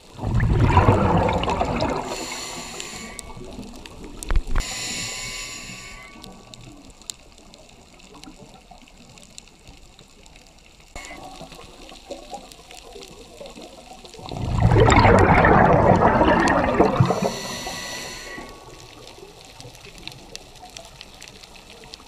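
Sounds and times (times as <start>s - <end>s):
scuba exhalation bubbles: 0.0s - 4.1s, 14.2s - 18.8s
faint underwater clicking: 0.2s - 22.0s.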